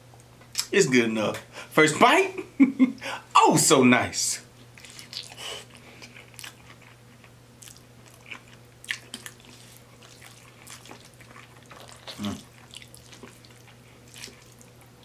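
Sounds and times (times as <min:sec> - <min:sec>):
low electrical hum: 0:00.0 - 0:15.0
person chewing with wet smacks: 0:04.7 - 0:15.0.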